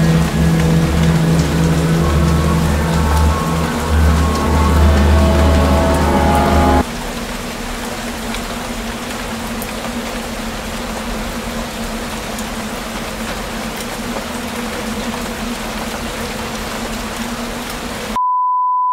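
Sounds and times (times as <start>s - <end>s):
low steady hum: 0.0s - 6.8s
rain falling through trees: 0.0s - 18.2s.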